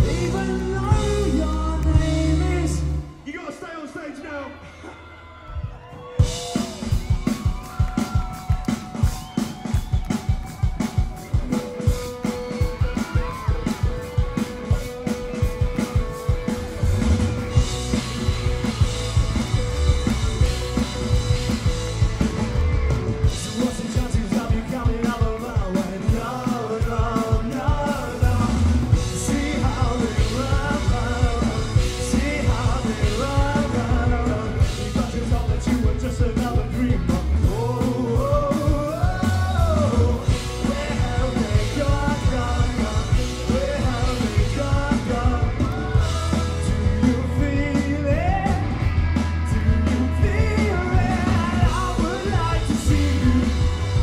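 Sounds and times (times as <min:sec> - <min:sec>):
man singing: 0:00.0 - 0:03.1, 0:23.2 - 0:54.0
live rock band playing: 0:00.0 - 0:04.8, 0:05.6 - 0:54.0.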